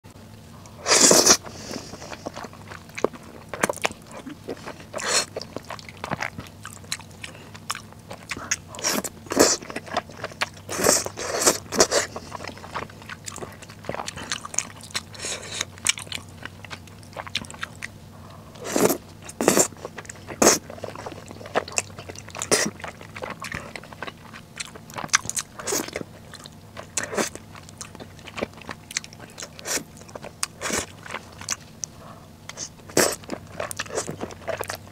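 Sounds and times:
wet chewing: 0:00.7 - 0:34.9
noodle slurping: 0:00.8 - 0:03.2, 0:08.8 - 0:12.9, 0:18.6 - 0:21.8, 0:32.5 - 0:34.6.

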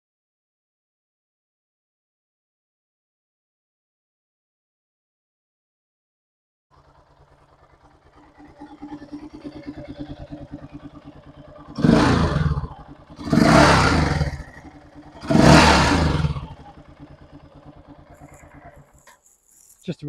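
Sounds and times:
motorcycle engine idling and revving: 0:06.7 - 0:20.0.

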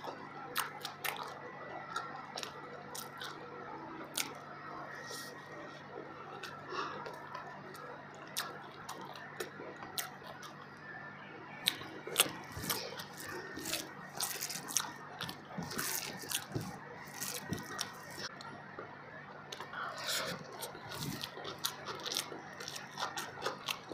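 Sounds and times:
chewing mouth sounds: 0:06.3 - 0:10.6, 0:11.6 - 0:18.5, 0:19.5 - 0:23.9.

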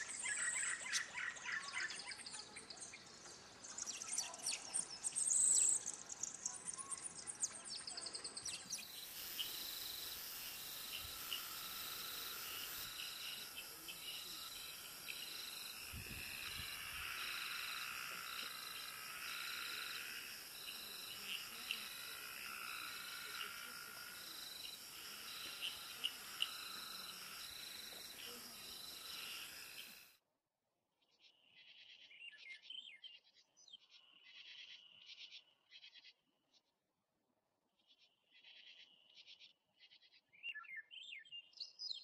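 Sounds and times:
birds chirping: 0:00.0 - 0:30.1
insect chorus: 0:00.0 - 0:30.2.

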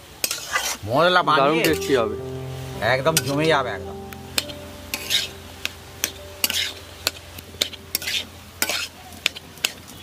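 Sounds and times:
low sizzle: 0:00.0 - 0:10.0
spatula scraping a pan: 0:00.2 - 0:00.8, 0:07.9 - 0:09.8.

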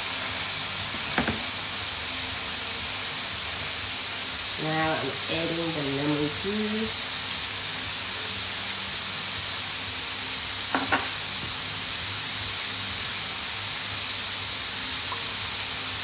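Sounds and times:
sauce sizzling in a pan: 0:00.0 - 0:16.0
spatula knocking on pan: 0:00.9 - 0:01.5, 0:10.7 - 0:11.6.

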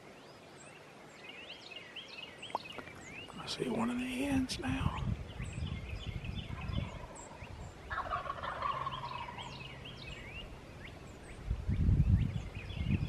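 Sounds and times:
small birds chirping: 0:00.0 - 0:13.0
turkey gobbling: 0:06.5 - 0:10.2.

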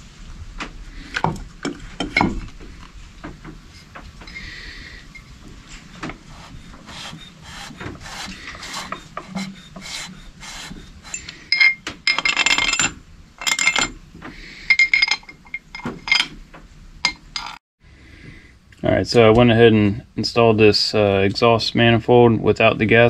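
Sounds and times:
metal parts and tools clinking: 0:11.0 - 0:14.0, 0:14.6 - 0:16.4, 0:17.0 - 0:17.6.

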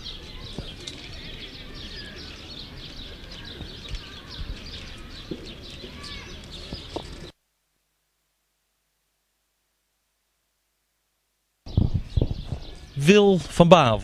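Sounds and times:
small birds chirping and whistling: 0:00.0 - 0:07.3, 0:11.7 - 0:13.4.

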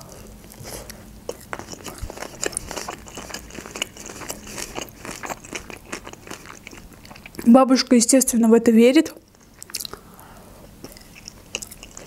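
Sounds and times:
chewing mouth clicks: 0:00.9 - 0:07.5, 0:09.3 - 0:10.0, 0:10.8 - 0:12.0.

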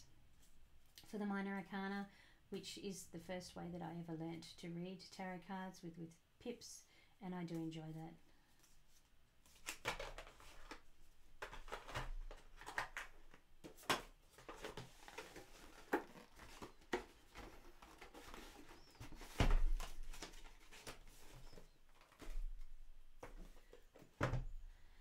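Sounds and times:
cards rustling: 0:08.6 - 0:24.3.

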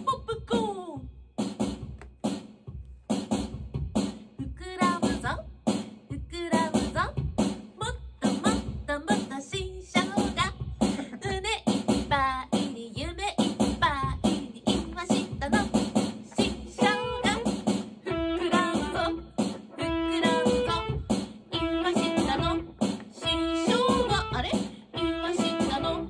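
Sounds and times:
woman singing into a microphone: 0:04.4 - 0:05.4, 0:06.1 - 0:07.2, 0:07.8 - 0:26.0
electric guitar playing: 0:23.3 - 0:26.0.

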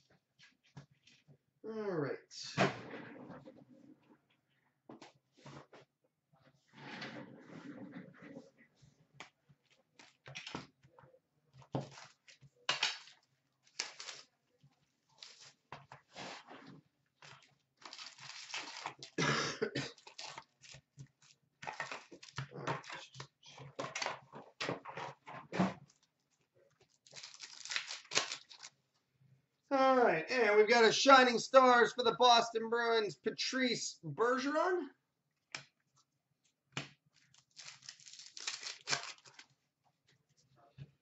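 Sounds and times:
foil wrappers crinkling and tearing: 0:12.9 - 0:14.3, 0:17.3 - 0:19.2, 0:19.9 - 0:23.2, 0:26.9 - 0:28.8, 0:37.1 - 0:39.6.

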